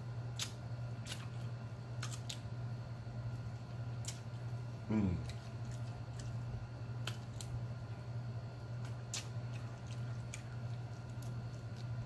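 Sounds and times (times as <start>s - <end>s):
steady low hum: 0.0s - 12.0s
wet chewing and lip-smacking: 8.8s - 12.0s.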